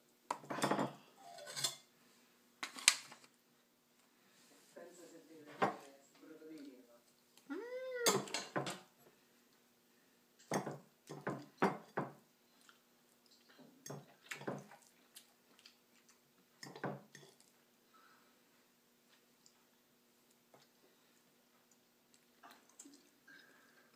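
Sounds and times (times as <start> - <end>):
cutlery clinking and scraping on plate: 0.4 - 1.8.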